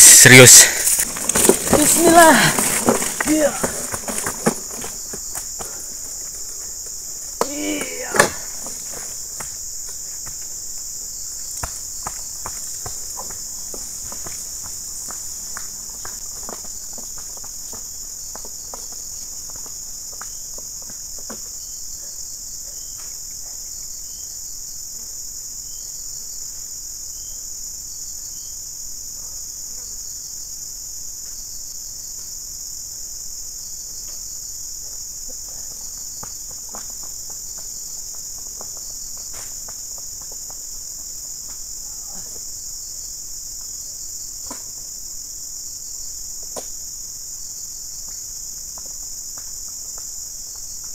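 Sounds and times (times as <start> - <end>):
insect chorus droning: 0.0 - 50.9
wheelbarrow clicks and knocks: 0.8 - 5.7, 7.4 - 9.1.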